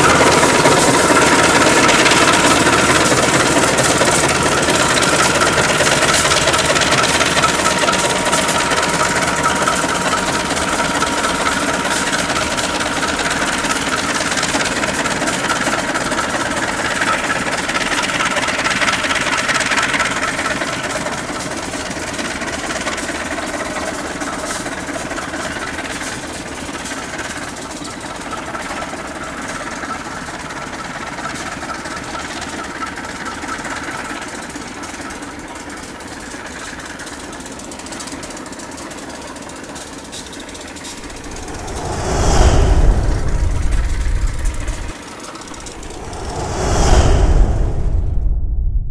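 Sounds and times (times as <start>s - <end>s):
diesel locomotive engine running: 0.0s - 21.5s, 40.7s - 44.9s.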